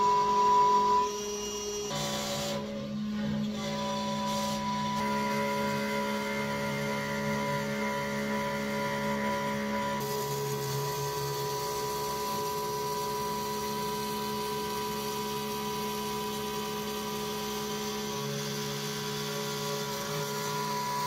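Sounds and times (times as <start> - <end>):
router spindle whine and hum: 0.0 - 21.0.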